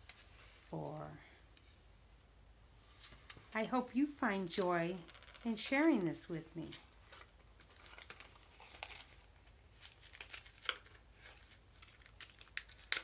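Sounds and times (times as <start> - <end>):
paper rustling: 6.4 - 13.0.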